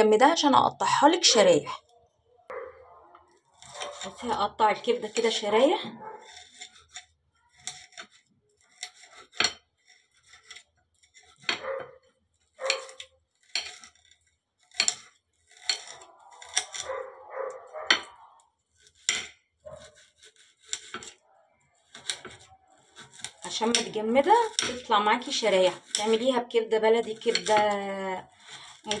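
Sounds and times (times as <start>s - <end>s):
knife scraping strokes: 3.3s - 21.2s, 21.8s - 29.0s.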